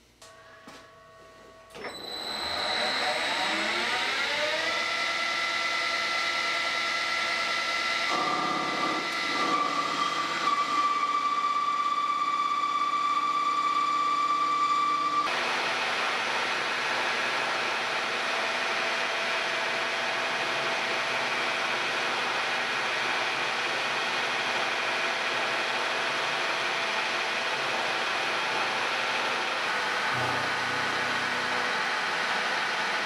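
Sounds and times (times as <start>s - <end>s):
metal lathe whining: 1.7s - 33.0s
milling machine drilling steel: 1.8s - 11.6s, 15.3s - 33.0s
steady tone: 29.7s - 33.0s.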